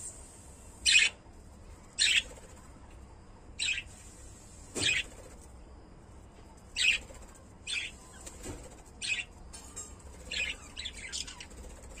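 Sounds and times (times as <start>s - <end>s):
lovebirds chirping harshly: 0.0s - 1.2s, 1.8s - 2.7s, 3.6s - 5.4s, 6.7s - 9.3s, 10.2s - 12.0s.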